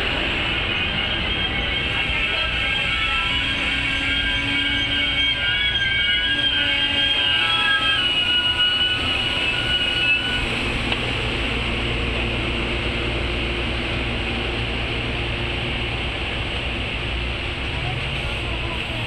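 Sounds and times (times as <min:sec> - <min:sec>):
train wheels rumbling on rails: 0:00.0 - 0:19.0
metallic wheel and brake squeal: 0:00.1 - 0:10.9.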